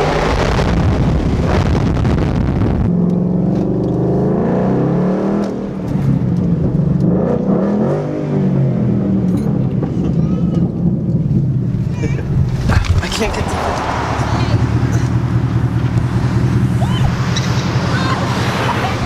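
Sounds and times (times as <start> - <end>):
car engine accelerating: 0.0 - 19.0.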